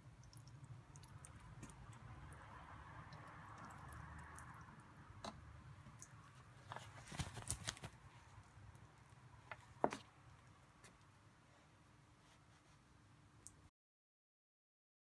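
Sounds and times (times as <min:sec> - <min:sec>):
gloves knocking and rustling: 0:06.3 - 0:08.4, 0:09.4 - 0:10.2.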